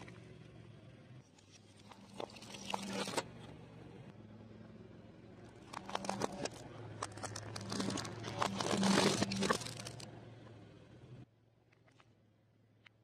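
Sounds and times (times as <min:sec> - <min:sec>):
low steady hum: 0:00.0 - 0:13.0
pencils crunching and snapping: 0:05.6 - 0:10.1.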